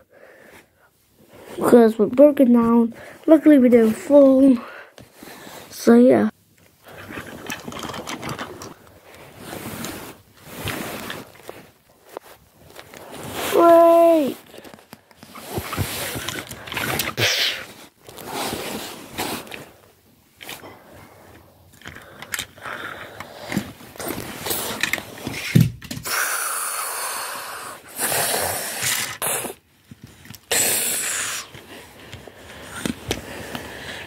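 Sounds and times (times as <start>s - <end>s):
hands handling toy train: 6.6s - 19.8s, 21.2s - 26.1s, 28.8s - 33.7s.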